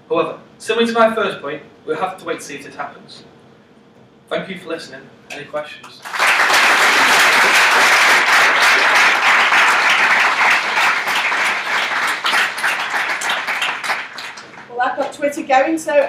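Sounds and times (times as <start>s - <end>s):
audience applauding: 6.0s - 14.8s.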